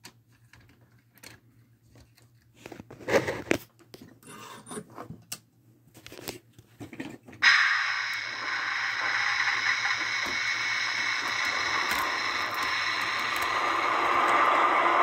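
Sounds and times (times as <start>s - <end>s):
small clicks and scrapes: 0.0s - 5.4s
model train running on track: 7.4s - 15.0s.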